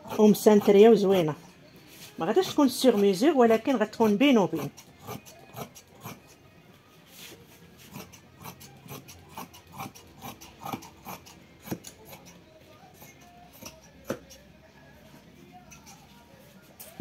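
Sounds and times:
fabric and tools scraping: 0:07.0 - 0:09.0.

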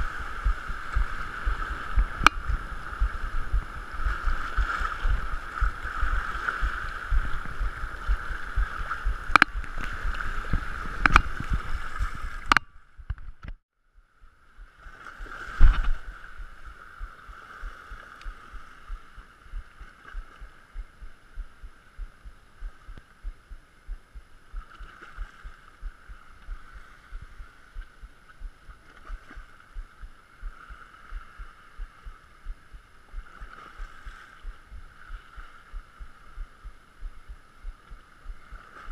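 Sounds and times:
surf washing around rocks: 0:00.0 - 0:12.6, 0:14.8 - 0:20.7, 0:38.3 - 0:38.9.

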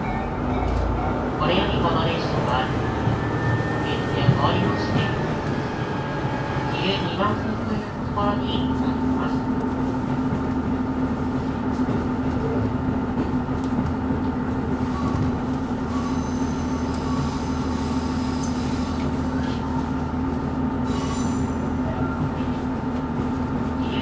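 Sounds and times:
diesel railcar engine hum: 0:00.0 - 0:24.0
train wheels squealing: 0:15.9 - 0:19.7, 0:20.9 - 0:22.2.

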